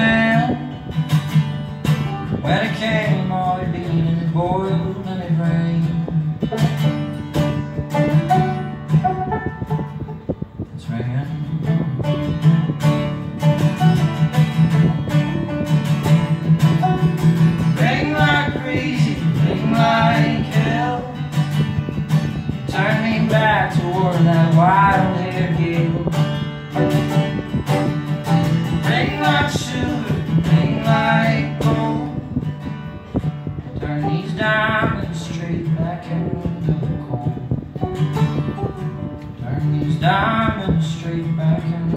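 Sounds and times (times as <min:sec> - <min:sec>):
acoustic guitar: 0:00.0 - 0:41.9
folk melody line: 0:00.0 - 0:41.9
banjo playing: 0:06.4 - 0:10.6, 0:11.6 - 0:18.6, 0:24.5 - 0:31.7, 0:37.8 - 0:39.4.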